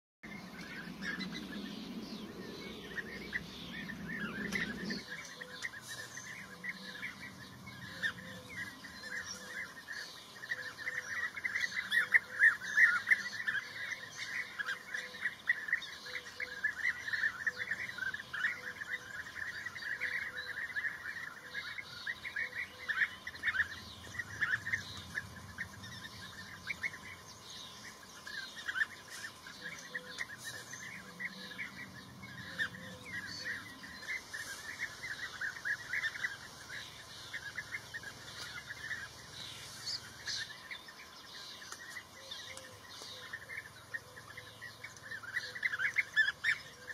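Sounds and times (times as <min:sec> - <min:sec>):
birds chirping: 0:00.2 - 0:46.9.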